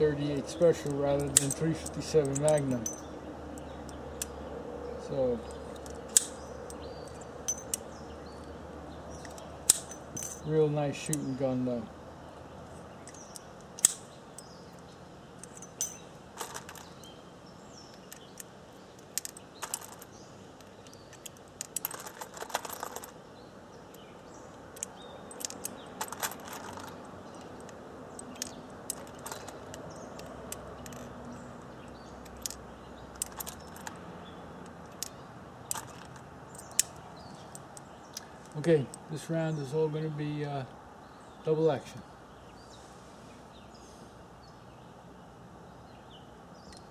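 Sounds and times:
brass cartridges clinking: 0.2s - 4.3s, 5.3s - 8.5s, 9.1s - 11.4s, 12.7s - 17.1s, 17.8s - 23.2s, 23.9s - 34.0s, 34.6s - 39.1s
metallic clicks of revolver: 5.4s - 8.4s, 13.0s - 14.6s.

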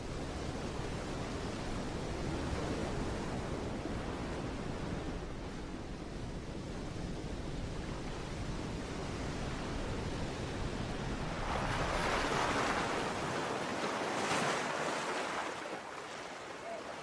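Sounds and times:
ocean waves washing: 8.2s - 17.0s.

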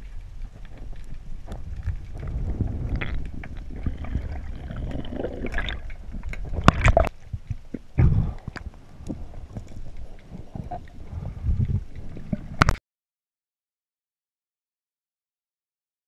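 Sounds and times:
underwater water rushing and bubbling: 0.0s - 12.8s.

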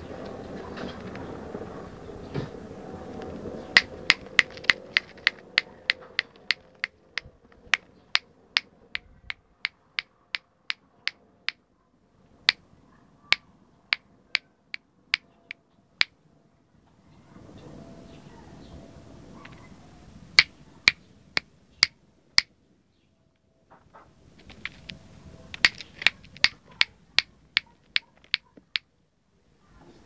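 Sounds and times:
fingers snapping: 3.8s - 7.8s, 24.4s - 25.0s, 25.6s - 28.8s.

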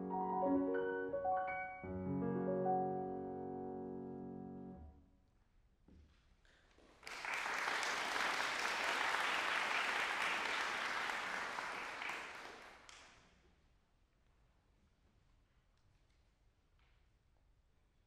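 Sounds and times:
piano chord: 0.0s - 5.0s
audience applause: 7.0s - 12.9s.

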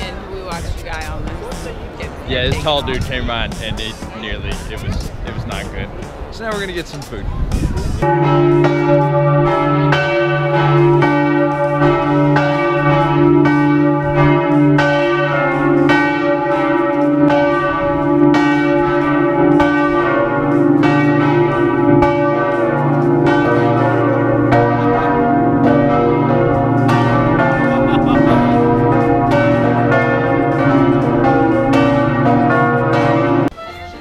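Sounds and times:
large church bells ringing: 8.0s - 34.0s.

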